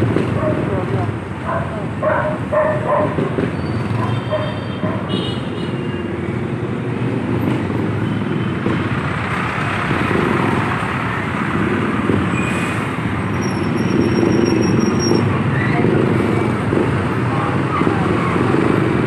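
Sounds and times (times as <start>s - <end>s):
vehicle engine and road noise: 0.0s - 19.0s.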